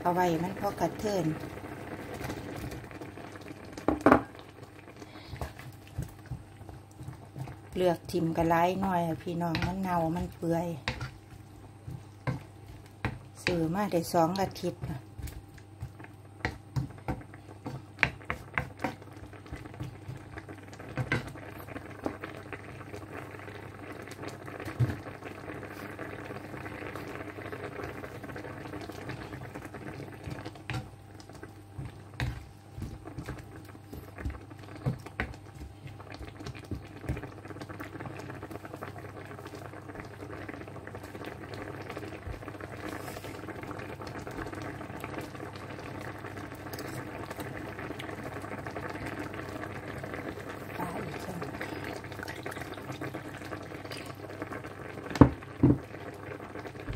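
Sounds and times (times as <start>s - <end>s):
broth bubbling at a boil: 0.0s - 56.9s
wooden spoon knocking on pan: 3.8s - 4.3s, 55.1s - 55.8s.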